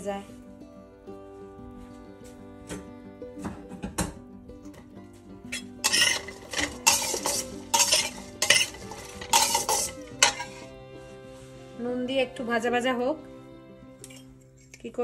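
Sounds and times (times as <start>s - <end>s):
faint background music: 0.0s - 15.0s
metal spatula scraping a pot: 5.5s - 10.8s.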